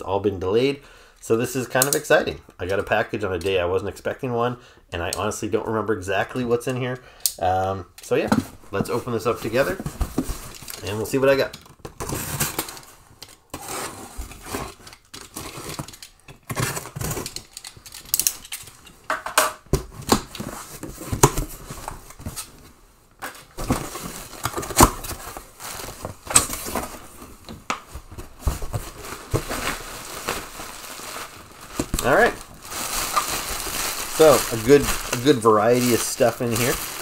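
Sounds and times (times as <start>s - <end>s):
cardboard scraping and rustling: 8.3s - 11.2s, 13.5s - 17.4s, 23.5s - 37.0s.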